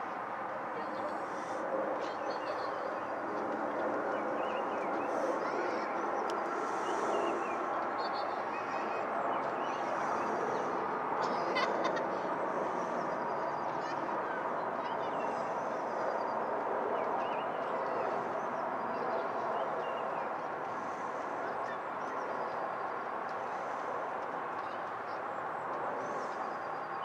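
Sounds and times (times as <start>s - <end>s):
jet engines droning overhead: 0.0s - 27.0s
birds chirping: 4.0s - 21.0s.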